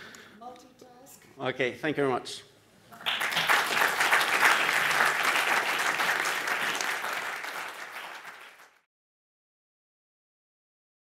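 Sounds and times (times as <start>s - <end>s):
audience applauding: 2.9s - 8.9s.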